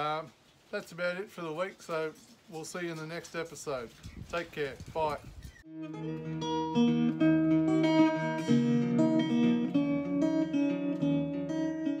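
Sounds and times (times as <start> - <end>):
acoustic guitar plucked notes: 5.7 - 12.0.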